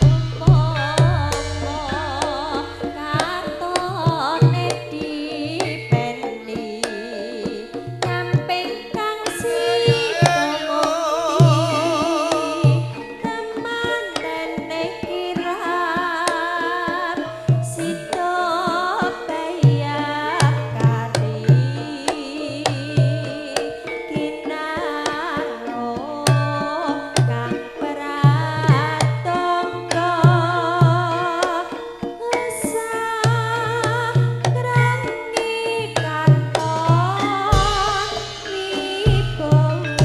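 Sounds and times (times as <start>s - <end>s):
hand drum deep strokes: 0.0s - 5.0s, 36.1s - 40.0s
sustained gamelan tones: 0.0s - 40.0s
woman singing with vibrato: 0.0s - 40.0s.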